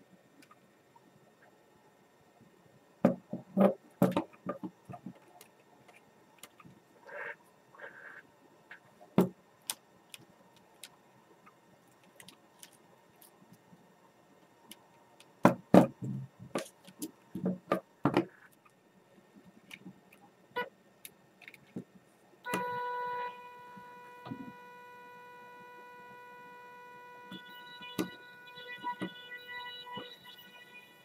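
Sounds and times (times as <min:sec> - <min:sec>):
electric motor whine: 0:22.5 - 0:31.0.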